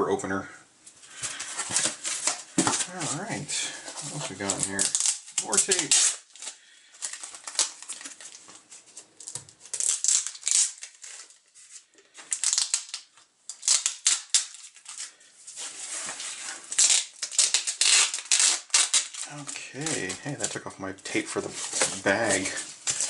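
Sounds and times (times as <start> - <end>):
cardboard rustling and scraping: 1.1 - 5.9, 15.4 - 16.8, 19.3 - 23.0
packing tape peeling off cardboard: 1.1 - 20.6, 21.2 - 23.0.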